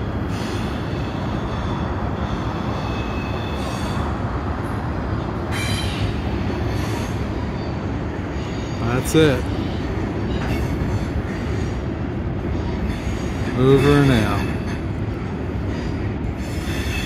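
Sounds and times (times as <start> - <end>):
freight train wheels rumbling: 0.0 - 17.0
high wheel squeals: 0.2 - 4.2, 5.5 - 11.8, 15.6 - 17.0.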